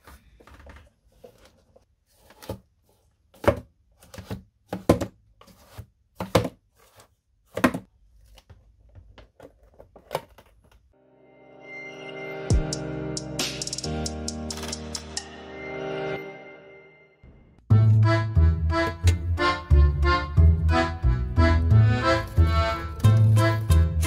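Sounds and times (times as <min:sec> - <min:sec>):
cardboard rustling: 0:00.0 - 0:10.9.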